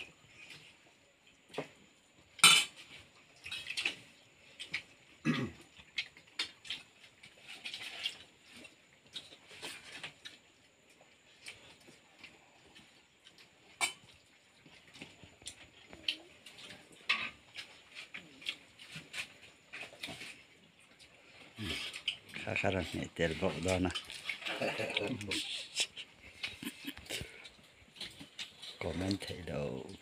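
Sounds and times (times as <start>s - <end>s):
cutlery-free clinks on steel plates: 2.4s - 2.8s.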